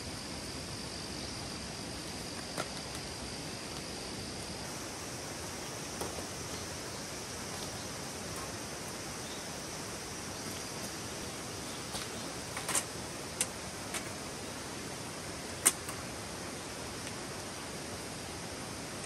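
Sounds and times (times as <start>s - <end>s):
small stream rushing: 4.5s - 19.0s.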